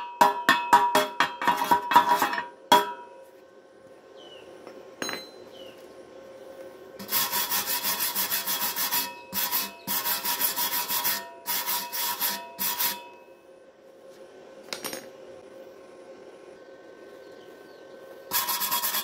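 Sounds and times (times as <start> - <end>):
wire brush scraping metal: 7.0 - 13.2, 18.3 - 19.0.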